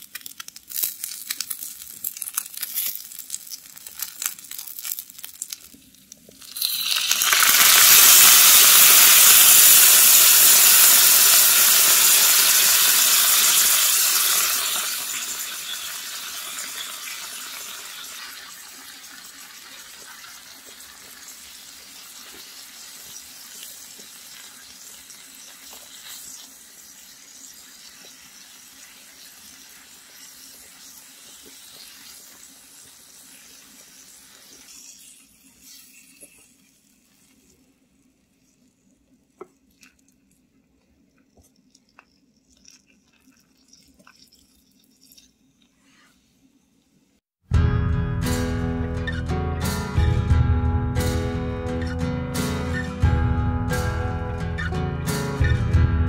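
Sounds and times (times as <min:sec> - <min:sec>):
fish fillets crackling on griddle: 0:00.0 - 0:37.5
loud sizzle of glaze in pan: 0:00.0 - 0:38.8, 0:51.0 - 0:55.6.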